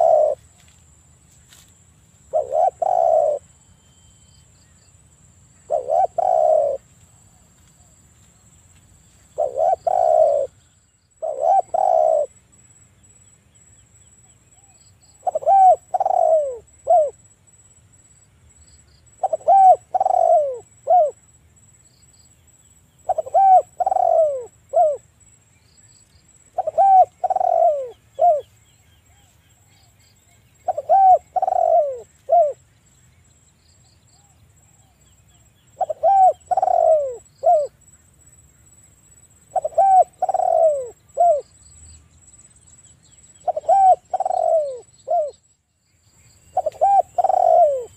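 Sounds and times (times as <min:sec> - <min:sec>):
dove cooing: 0:00.0 - 0:00.5, 0:02.3 - 0:03.5, 0:05.6 - 0:07.9, 0:09.4 - 0:10.6, 0:11.2 - 0:12.4, 0:14.6 - 0:17.2, 0:19.2 - 0:21.2, 0:23.0 - 0:25.0, 0:26.5 - 0:28.5, 0:30.6 - 0:32.6, 0:35.7 - 0:37.8, 0:39.5 - 0:41.5, 0:43.4 - 0:45.4, 0:46.5 - 0:47.9.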